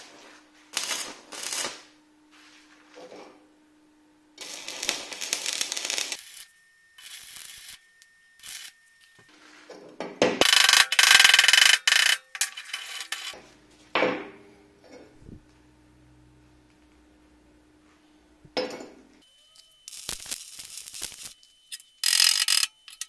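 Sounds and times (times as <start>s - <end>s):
welding arc crackling and hissing: 0.0s - 2.9s, 4.4s - 9.3s, 19.5s - 22.7s
steady low hum: 0.0s - 23.0s.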